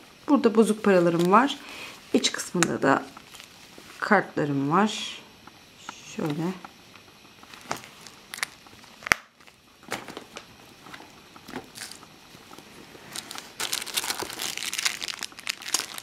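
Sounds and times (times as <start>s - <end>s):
plastic wrapper crinkling: 3.1s - 3.7s, 7.4s - 16.0s.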